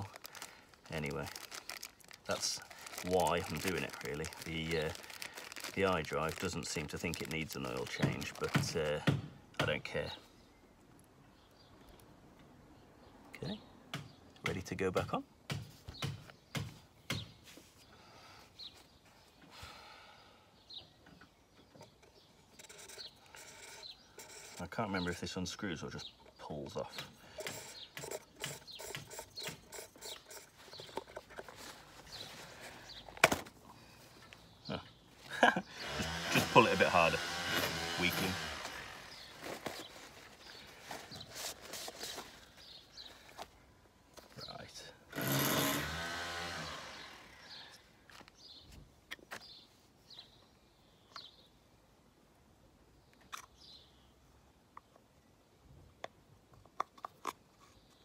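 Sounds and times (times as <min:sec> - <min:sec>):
paper towel rustling: 0:00.0 - 0:08.6
distant bird chirps: 0:15.8 - 0:37.2
small clicks and rubbing: 0:56.0 - 0:58.0.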